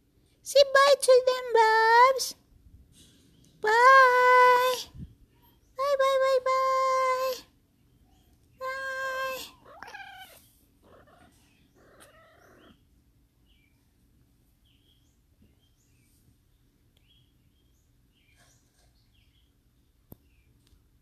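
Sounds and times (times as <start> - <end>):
cat meowing: 9.4 - 12.8.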